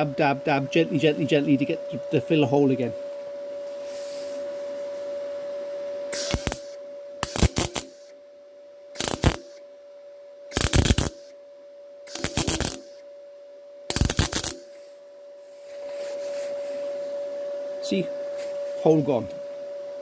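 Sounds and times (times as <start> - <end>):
steady hum: 0.0 - 20.0
welding arc crackling: 6.1 - 8.1, 9.0 - 9.6, 10.5 - 11.3, 12.1 - 13.0, 13.9 - 14.8.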